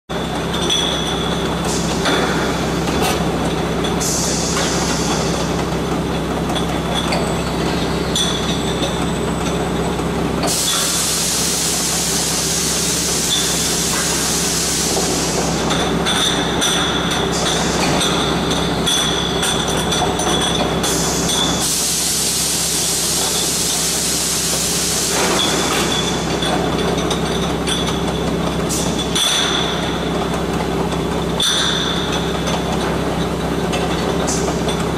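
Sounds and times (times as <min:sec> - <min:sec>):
gas hissing: 0:10.5 - 0:15.7, 0:21.0 - 0:26.0
glass bottles clinking: 0:15.6 - 0:21.6, 0:31.4 - 0:32.8.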